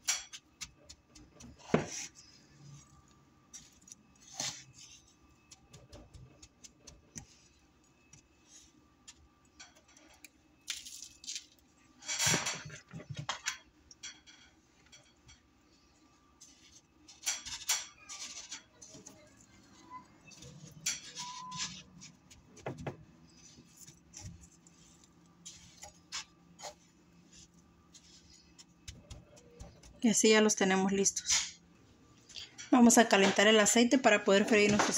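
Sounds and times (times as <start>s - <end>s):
breadcrumbs rustling: 0.2s - 9.3s, 15.6s - 30.6s.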